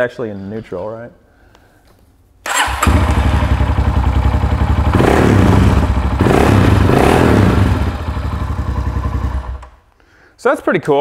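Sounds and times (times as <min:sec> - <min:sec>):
motorcycle engine revving and idling: 0:02.5 - 0:09.7.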